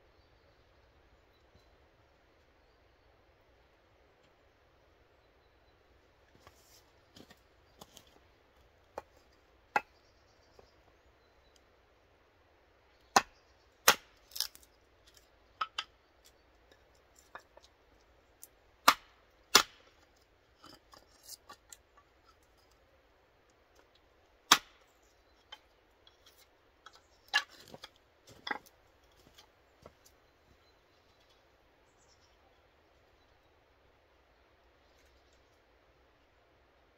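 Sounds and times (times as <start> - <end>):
knocks of wood pieces handled: 8.9 - 9.9, 13.1 - 22.8, 23.7 - 30.2
hatchet chopping wood: 9.7 - 9.9, 13.1 - 14.6, 18.8 - 20.1, 24.5 - 24.9.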